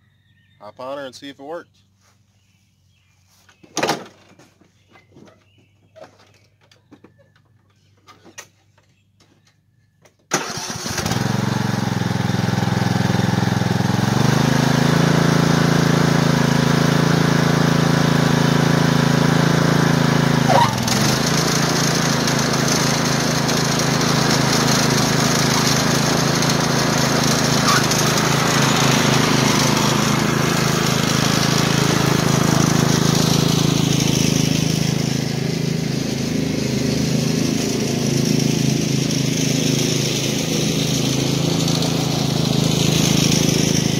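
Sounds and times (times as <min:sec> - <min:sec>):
riding mower engine running: 0:10.3 - 0:43.9.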